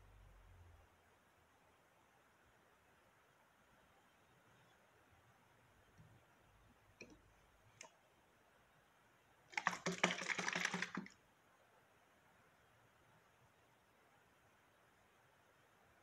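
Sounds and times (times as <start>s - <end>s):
spray bottle clicking and rattling: 9.5s - 11.1s.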